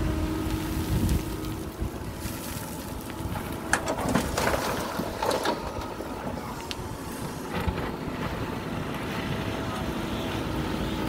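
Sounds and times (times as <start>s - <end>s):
diesel engine under load: 0.0s - 11.0s
soil and gravel dumping into truck: 0.4s - 8.8s
knocks and rattling: 3.3s - 6.4s.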